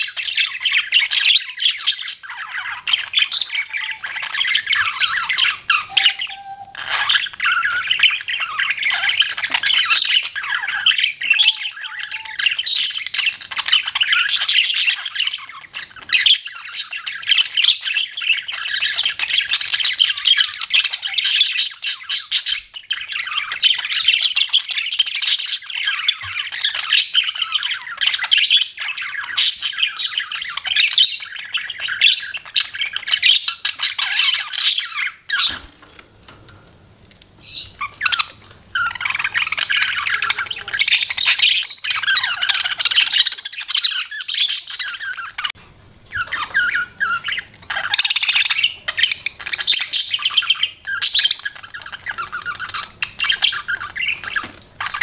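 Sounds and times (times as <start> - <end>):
budgerigars chattering and warbling: 0.0 - 36.1, 37.4 - 55.0.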